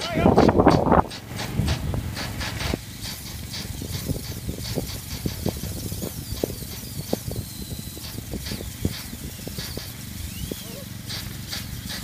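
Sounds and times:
quick irregular clicks: 0:00.4 - 0:10.1.

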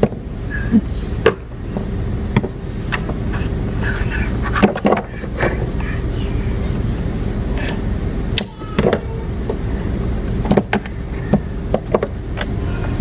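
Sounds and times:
steady low rumble: 0:00.0 - 0:13.0
plastic dolls knocking on wood: 0:08.8 - 0:09.1.

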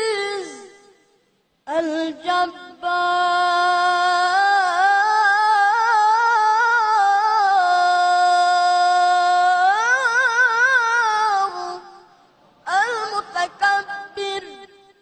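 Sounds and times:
boy reciting melodically: 0:00.0 - 0:15.0.

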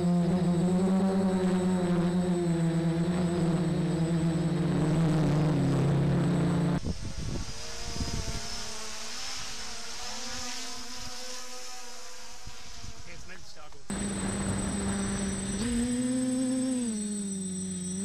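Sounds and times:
drone propellers humming: 0:00.0 - 0:09.8, 0:13.9 - 0:18.0
wind buffeting microphone: 0:06.8 - 0:08.5.

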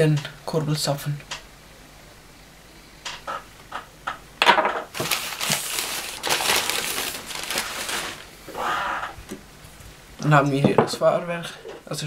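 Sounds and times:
paper crumpling and rustling: 0:04.9 - 0:08.6.

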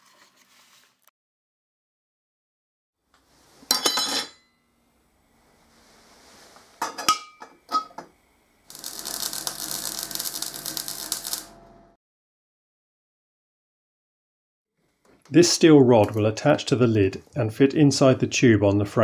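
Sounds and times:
steel plate clinking on steel: 0:03.7 - 0:04.5
low electrical hum: 0:04.6 - 0:12.0
arc welding crackle: 0:08.6 - 0:12.0.

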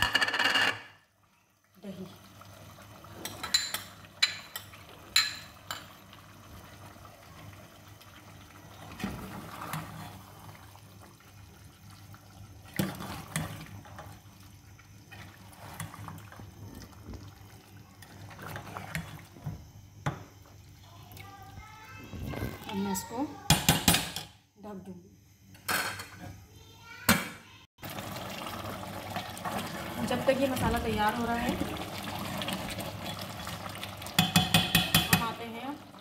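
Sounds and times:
ladle stirring wet food: 0:02.2 - 0:21.3, 0:27.9 - 0:36.0
metal clinking on pot: 0:03.2 - 0:06.0, 0:34.1 - 0:35.4.

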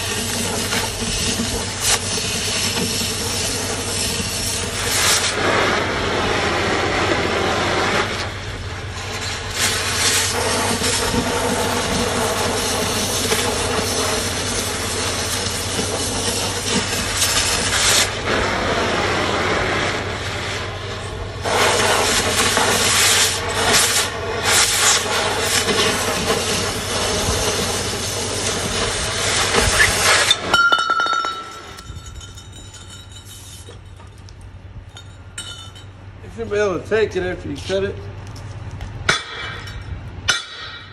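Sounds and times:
cutting torch hissing: 0:00.0 - 0:30.5.

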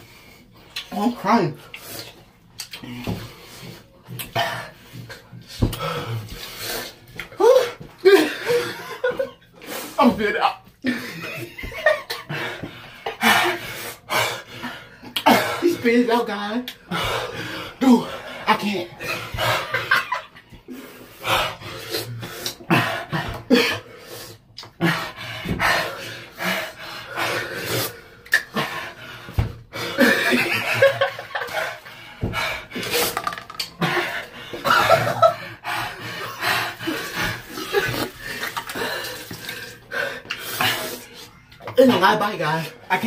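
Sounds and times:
man panting and gasping: 0:01.7 - 0:16.0, 0:16.7 - 0:41.6
man laughing: 0:08.0 - 0:09.4, 0:30.0 - 0:31.7, 0:34.6 - 0:35.5.

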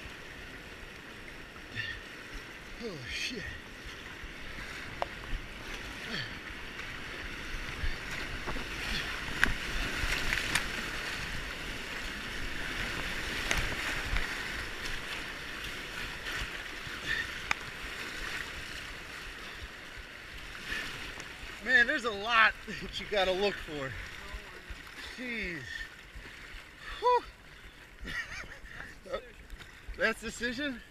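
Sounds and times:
whitewater rapids rushing: 0:02.7 - 0:19.7
knocks and splashes: 0:04.6 - 0:18.8.

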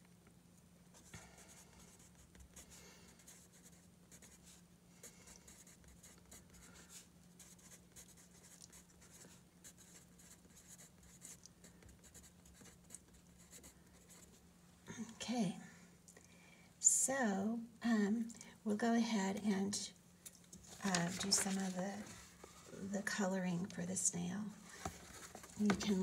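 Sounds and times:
pencil scratching on paper: 0:05.5 - 0:14.3.

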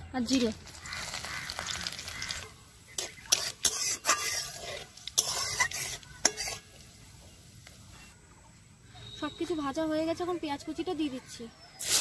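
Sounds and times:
spices sizzling in hot oil: 0:00.2 - 0:08.1, 0:11.8 - 0:12.0
spoon scraping and knocking pan: 0:03.0 - 0:06.8.

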